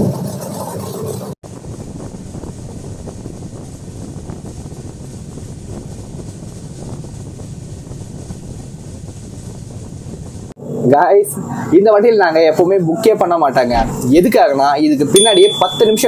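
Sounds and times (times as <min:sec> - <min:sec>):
train rumbling on rails: 0:00.0 - 0:10.6, 0:13.7 - 0:14.3.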